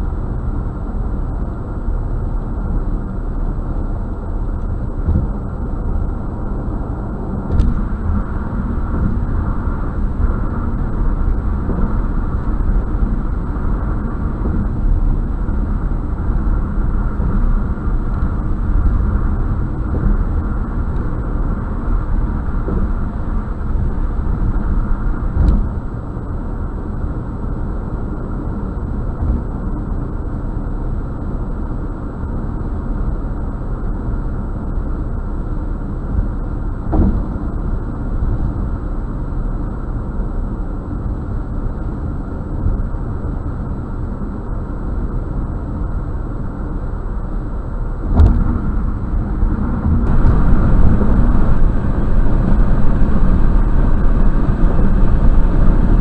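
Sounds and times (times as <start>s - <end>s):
car interior road rumble: 0.0s - 56.0s
thud: 36.9s - 37.4s, 48.1s - 48.7s.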